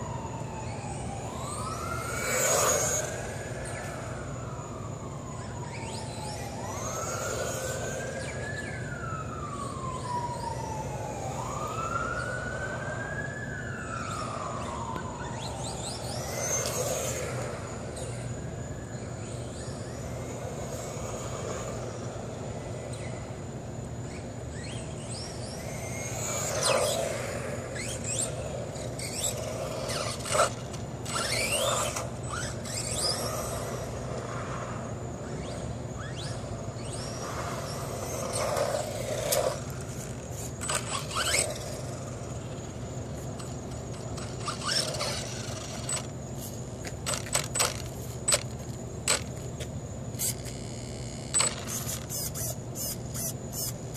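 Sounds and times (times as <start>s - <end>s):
rc car motor whining: 0.7s - 4.7s, 5.4s - 9.2s, 14.0s - 18.4s, 19.2s - 23.4s, 24.1s - 49.4s, 50.1s - 53.9s
tyres scraping on asphalt: 36.0s - 50.6s.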